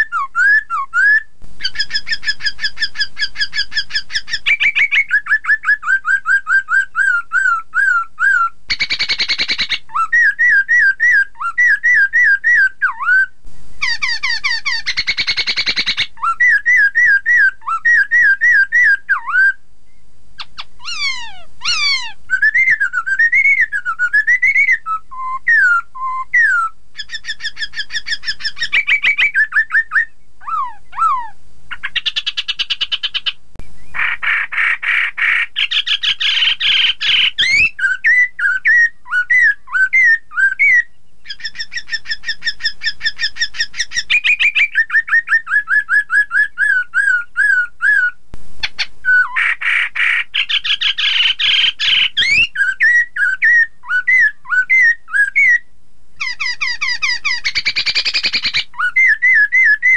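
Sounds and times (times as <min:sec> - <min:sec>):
bird singing whistled notes: 0:00.0 - 0:59.9
bird harsh chattering: 0:01.6 - 0:05.6, 0:08.7 - 0:12.0, 0:13.8 - 0:19.0, 0:20.4 - 0:23.7, 0:26.4 - 0:40.1, 0:40.7 - 0:45.5, 0:46.7 - 0:55.6, 0:56.2 - 0:59.9.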